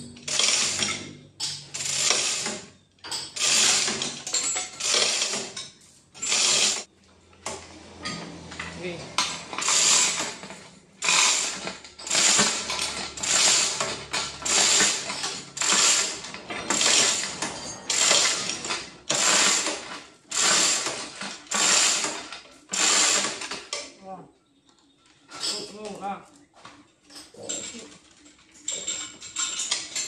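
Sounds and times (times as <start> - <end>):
chain hoist chain rattling: 0.0 - 6.9, 8.6 - 23.6, 28.5 - 30.0.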